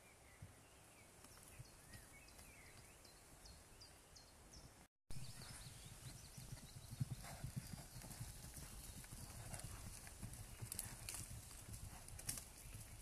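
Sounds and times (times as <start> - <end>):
cattle hooves thudding on ground: 7.2 - 13.0.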